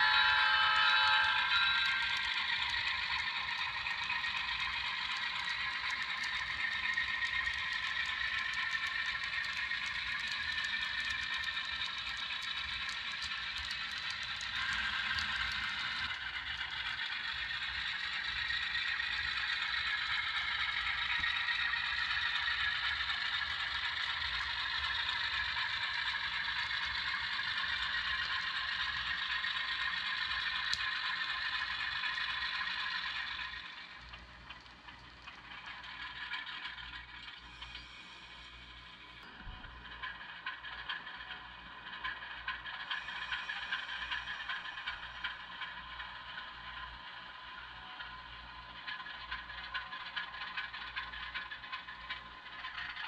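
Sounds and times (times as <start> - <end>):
model train rattling on track: 0.0 - 53.0.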